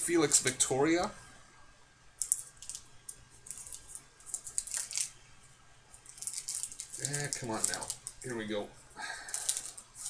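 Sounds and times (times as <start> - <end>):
trading cards clicking and rustling: 2.2 - 5.2, 6.0 - 8.3, 9.2 - 10.0.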